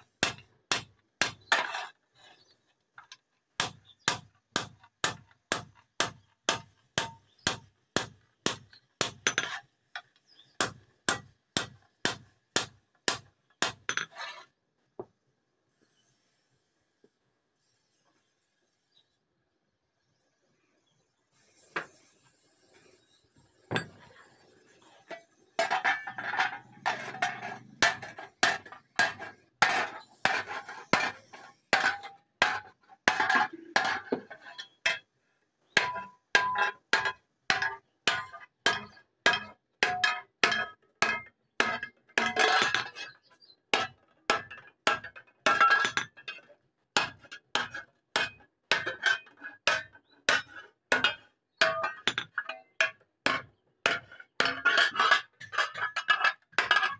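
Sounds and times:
hammer clanking on metal: 25.6 - 34.4.

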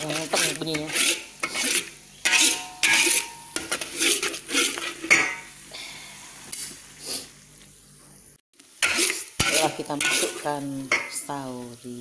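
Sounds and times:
metal spatula scraping frying pan: 0.0 - 5.5, 8.8 - 11.2
light sizzle: 0.0 - 12.0.

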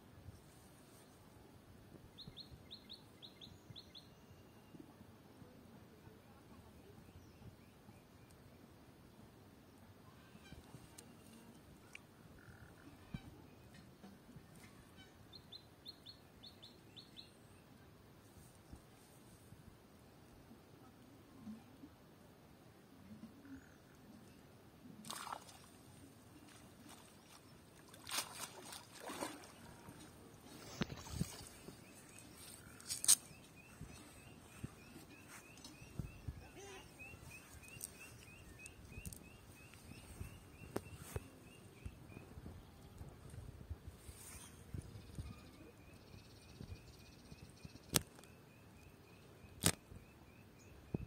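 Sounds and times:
net splashing in water: 25.0 - 25.7, 27.8 - 30.0
sharp click: 49.6 - 49.8.

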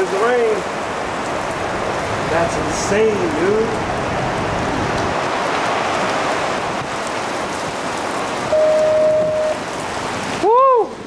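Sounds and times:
rain falling steadily: 0.0 - 11.0
steady beep: 8.5 - 9.6.

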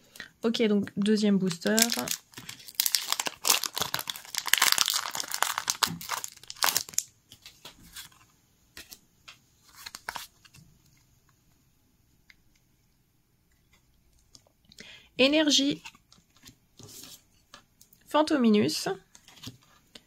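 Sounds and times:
foil wrapper tearing and crinkling: 1.5 - 7.1.

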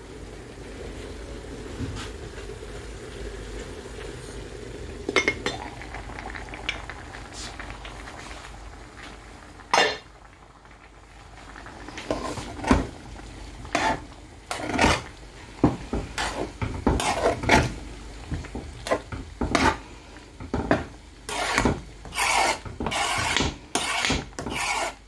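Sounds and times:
metal cookware clattering: 9.7 - 10.0
ladle knocking and scraping in pot: 13.7 - 19.8, 20.4 - 25.0.

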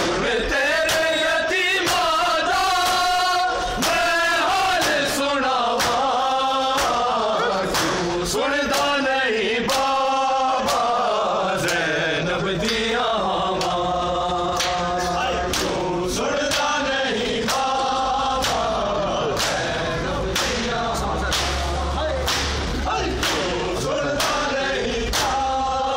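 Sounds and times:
men chanting a lament: 0.0 - 25.9
hands slapping chests: 3.8 - 4.1, 4.8 - 5.1, 5.8 - 6.1, 7.7 - 8.0, 18.4 - 18.7, 19.4 - 19.7, 20.3 - 20.6, 21.3 - 23.6, 24.2 - 24.5.

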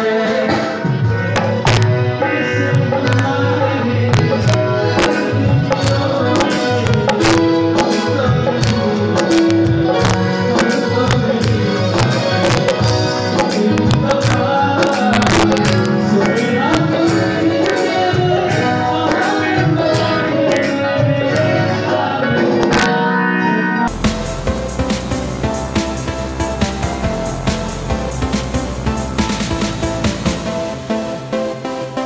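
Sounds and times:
live band music with singing: 0.0 - 32.0.

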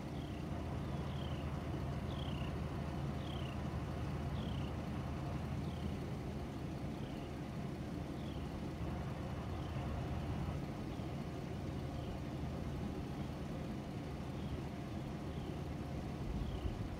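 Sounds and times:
bird chirping: 0.1 - 2.5, 3.2 - 3.6, 4.3 - 4.8, 16.4 - 16.8.

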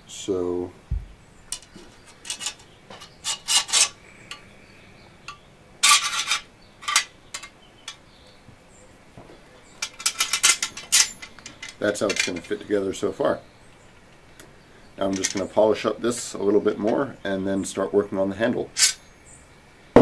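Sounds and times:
metal scrapes and clinks: 1.5 - 4.4, 5.3 - 8.0, 9.8 - 12.6, 15.1 - 15.6, 18.8 - 19.0.

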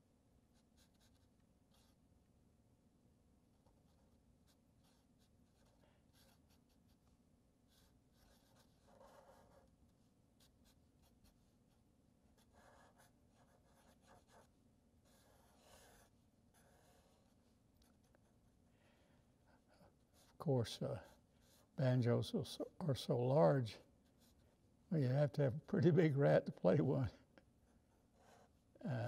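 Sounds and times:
marker scratching on paper: 0.6 - 2.0, 3.6 - 7.1, 7.7 - 18.3, 20.0 - 20.4, 21.0 - 21.8, 24.0 - 24.4, 27.6 - 28.9.

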